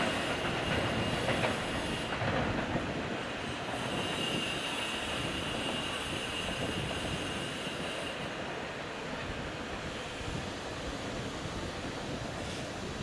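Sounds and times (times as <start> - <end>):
electric train rumble: 0.0 - 13.0
high wheel squeal: 3.4 - 8.3.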